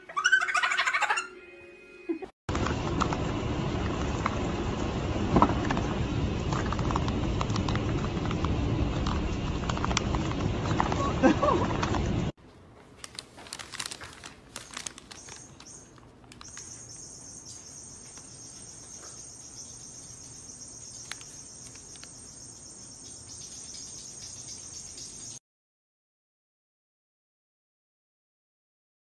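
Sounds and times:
paper bag crinkling: 12.9s - 16.8s
high-pitched insect-like trill: 16.4s - 25.4s.

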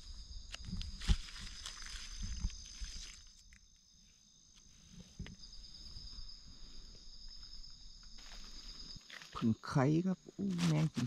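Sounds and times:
insects trilling: 0.0s - 11.0s
pulsing insect trill: 0.0s - 11.0s
hands handling mushrooms: 10.4s - 11.0s.

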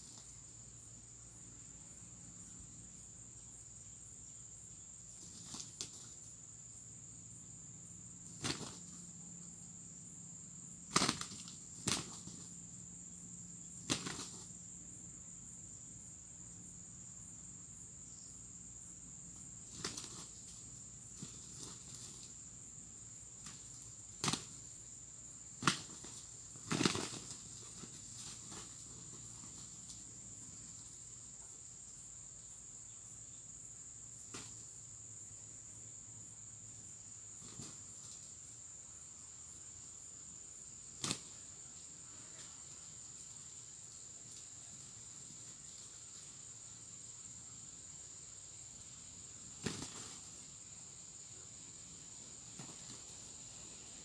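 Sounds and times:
insects droning: 0.0s - 54.0s
roosters wing flapping: 5.1s - 6.2s, 8.2s - 9.0s, 10.9s - 12.5s, 13.8s - 14.5s, 19.6s - 22.3s, 23.4s - 24.7s, 25.6s - 30.0s, 41.0s - 41.4s, 49.5s - 50.4s, 52.5s - 53.3s.

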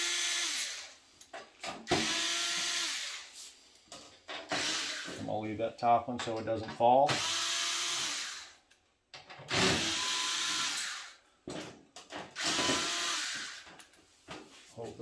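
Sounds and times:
electric screwdriver running: 0.0s - 0.9s, 2.0s - 3.3s, 7.1s - 8.5s, 9.5s - 11.2s, 12.4s - 13.6s.

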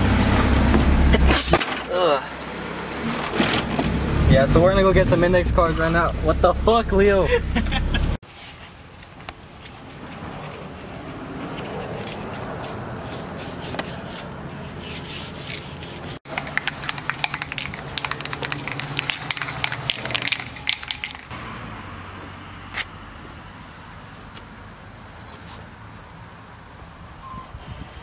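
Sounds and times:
spray can ball rattling: 16.3s - 21.3s.

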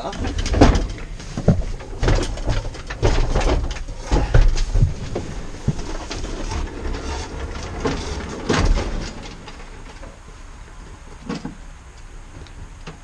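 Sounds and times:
lawnmower rattling and knocking: 0.0s - 10.1s
heavy thud: 0.3s - 6.0s.

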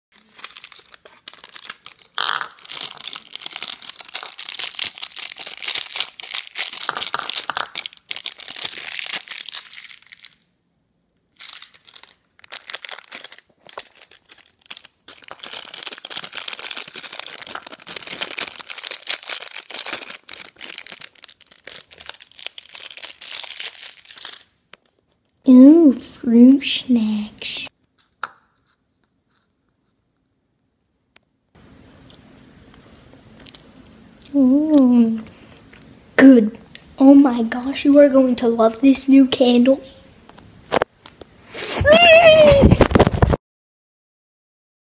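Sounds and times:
plastic pouches crinkling: 0.2s - 10.5s, 11.3s - 25.4s.

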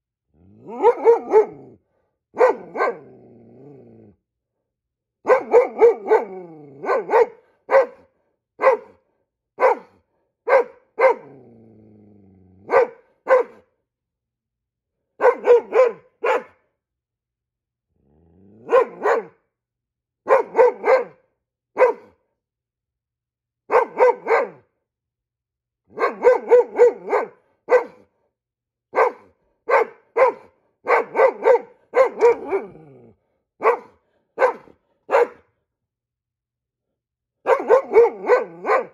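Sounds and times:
dog growling: 0.3s - 1.9s, 2.6s - 4.2s, 6.2s - 6.8s, 11.2s - 12.7s, 17.9s - 19.0s, 32.2s - 33.4s
dog barking: 0.6s - 3.2s, 5.2s - 11.4s, 12.6s - 13.8s, 15.2s - 16.7s, 18.6s - 19.4s, 20.2s - 22.3s, 23.7s - 24.7s, 25.9s - 28.2s, 28.9s - 33.0s, 33.6s - 35.6s, 37.4s - 38.9s.

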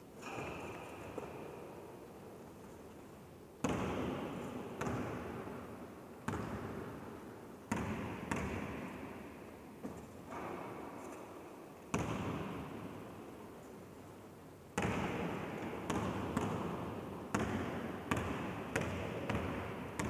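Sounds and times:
basketball bouncing in a gym: 0.2s - 1.5s, 3.6s - 10.9s, 11.9s - 13.2s, 14.8s - 20.0s.

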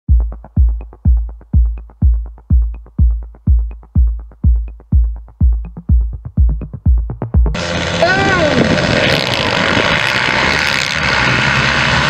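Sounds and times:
heavy kick drum: 0.0s - 7.6s
electronic dance music: 0.0s - 8.5s
light ticking: 0.1s - 7.6s.

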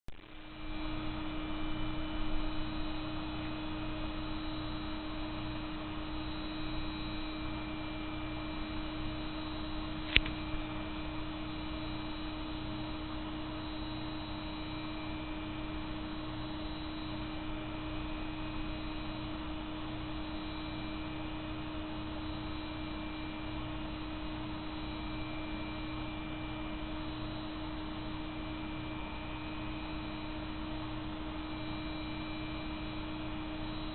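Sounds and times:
steady hum: 0.1s - 33.9s
sharp click: 10.0s - 10.4s.

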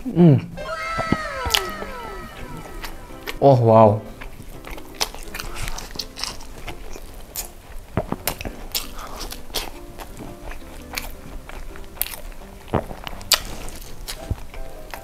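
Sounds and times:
chewing with mouth clicks: 4.7s - 15.0s
biting into fried chicken: 5.0s - 14.9s.

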